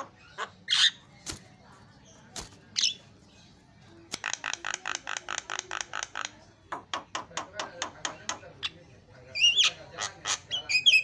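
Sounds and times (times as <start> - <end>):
bird squawking and clicking: 4.1 - 6.4.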